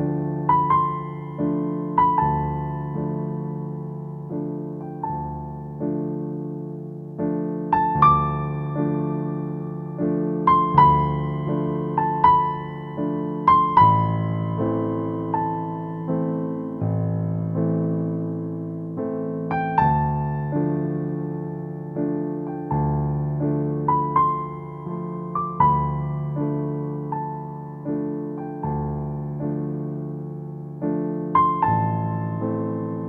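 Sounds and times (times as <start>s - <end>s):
soft piano chords: 0.0s - 33.0s.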